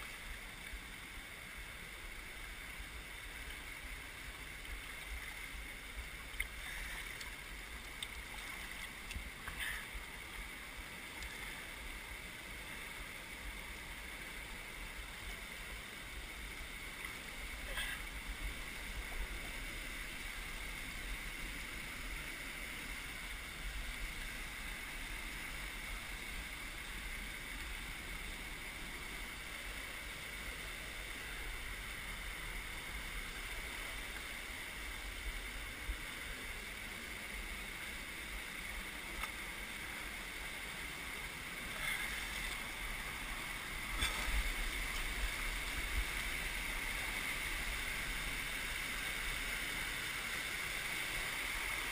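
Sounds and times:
river rapids rushing: 0:00.0 - 0:51.9.

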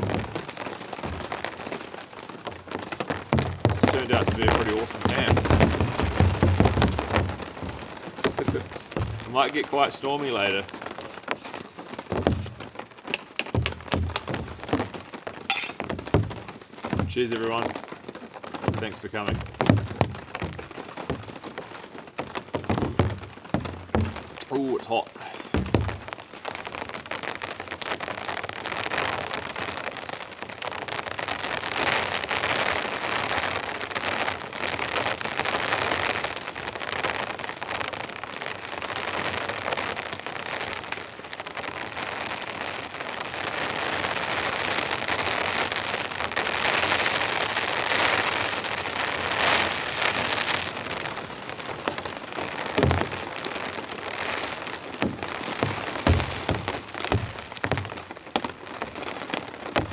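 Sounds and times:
rain on tarp and tent: 0:00.0 - 0:59.9
low thump: 0:01.0 - 0:01.6, 0:03.4 - 0:09.4, 0:12.1 - 0:12.7, 0:13.5 - 0:14.9, 0:15.9 - 0:17.2, 0:18.7 - 0:21.3, 0:22.6 - 0:24.4, 0:25.6 - 0:26.1, 0:52.8 - 0:53.2, 0:55.0 - 0:58.0.

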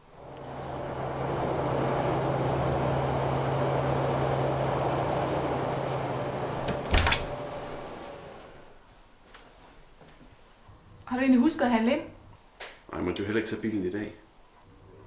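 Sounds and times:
train rumbling past: 0:00.0 - 0:06.6.

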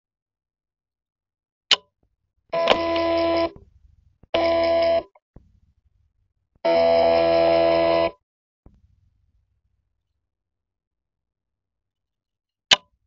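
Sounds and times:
sharp click: 0:01.7 - 0:01.9, 0:12.7 - 0:13.0
electronic buzzing tone: 0:02.6 - 0:03.6, 0:04.4 - 0:05.1, 0:06.7 - 0:08.2.

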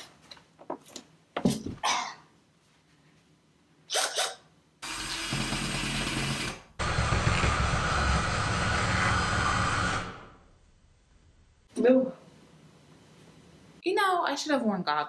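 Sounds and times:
power drill drilling: 0:04.8 - 0:10.4.

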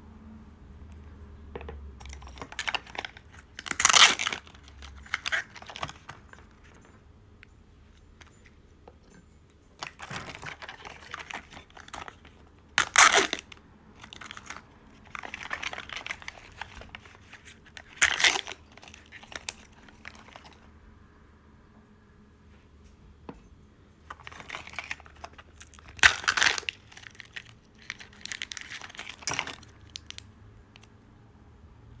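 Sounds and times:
sharp plastic rips: 0:02.0 - 0:06.1, 0:12.8 - 0:20.4, 0:24.3 - 0:30.2
plastic wrappers crinkling: 0:02.0 - 0:06.9, 0:09.8 - 0:20.6, 0:24.1 - 0:30.9.

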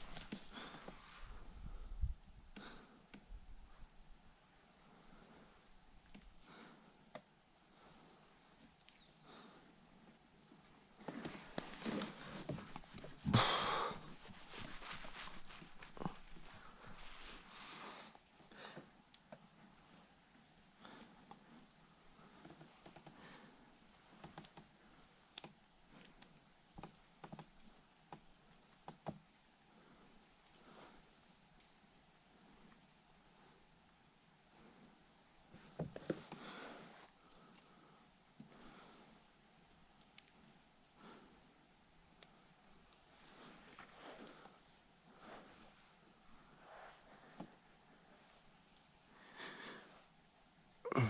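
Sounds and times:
light clicks: 0:25.3 - 0:29.2.

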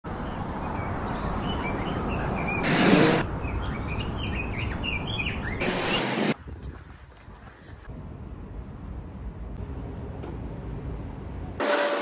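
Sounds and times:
small birds chirping: 0:00.1 - 0:06.2.

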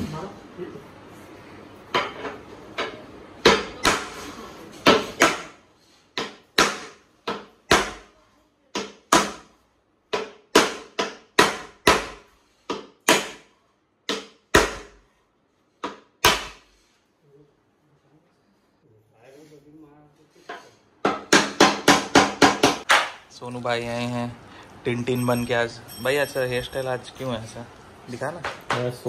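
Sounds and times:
hammer knocking on wooden panels: 0:04.8 - 0:08.1, 0:10.1 - 0:15.0, 0:21.0 - 0:23.2.

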